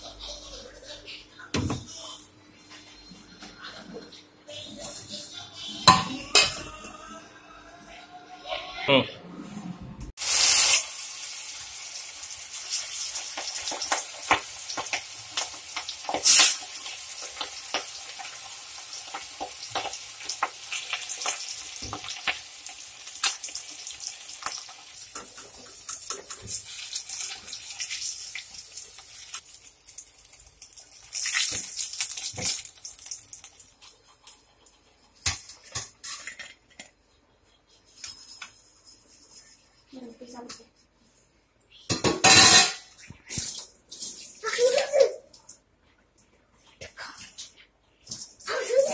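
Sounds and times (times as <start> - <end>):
fish deep-frying in oil: 10.2 - 34.6.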